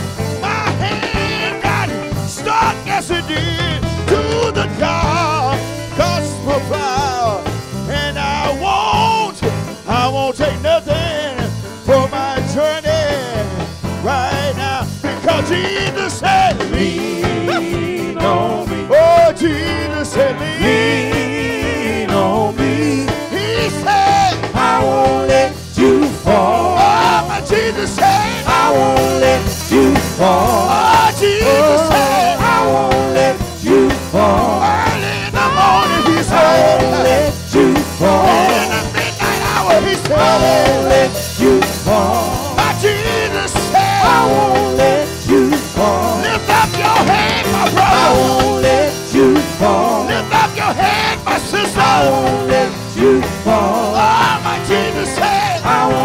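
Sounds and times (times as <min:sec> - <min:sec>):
band with bass and keyboard: 0:00.0 - 0:56.0
person singing into microphone: 0:00.4 - 0:56.0.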